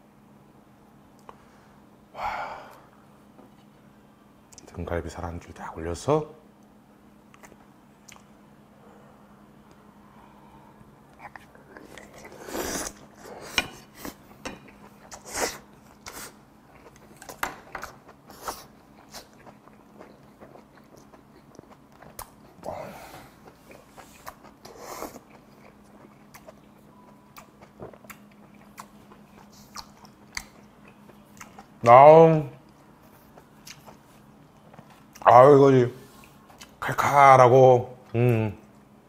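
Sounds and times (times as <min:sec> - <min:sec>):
faint steady hum: 0:00.0 - 0:39.0
man chewing: 0:07.3 - 0:08.3, 0:11.1 - 0:31.8, 0:32.6 - 0:35.3, 0:36.1 - 0:36.8
wet mouth smacks and clicks: 0:07.3 - 0:08.3.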